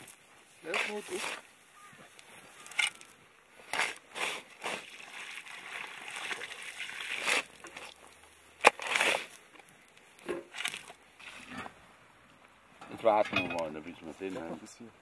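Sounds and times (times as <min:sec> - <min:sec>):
water splashing onto soil: 0:03.7 - 0:09.3
soil thrown from a shovel: 0:07.0 - 0:09.4.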